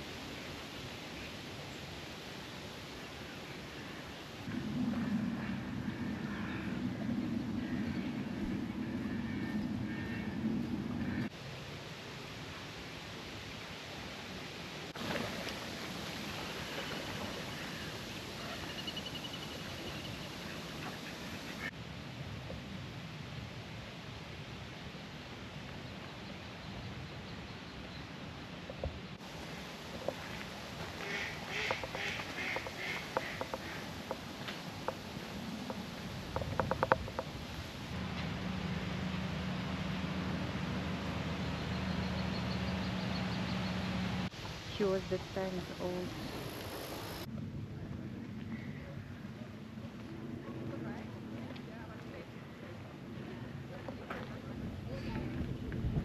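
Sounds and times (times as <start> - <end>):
faint bird calls: 3.7 - 11.3
engine drone: 4.5 - 11.3, 37.8 - 44.3
steady hiss: 9.9 - 26.6, 27.7 - 47.3.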